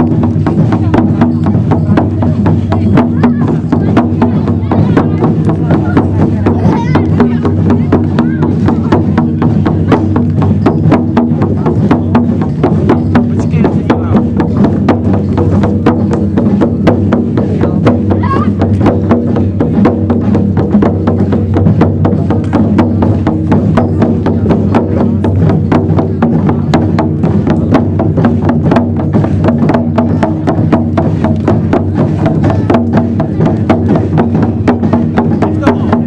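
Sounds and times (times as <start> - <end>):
fast steady drumming: 0.0 - 36.0.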